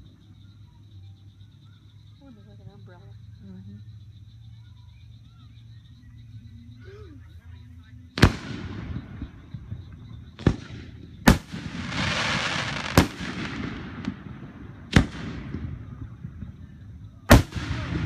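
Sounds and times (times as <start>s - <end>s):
fireworks bursting with bangs: 8.1s - 18.0s
fireworks hiss: 8.2s - 18.0s.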